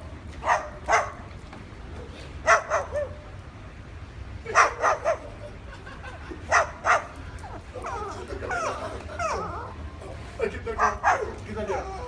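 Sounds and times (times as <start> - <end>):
cockatoo barking: 10.8 - 12.0.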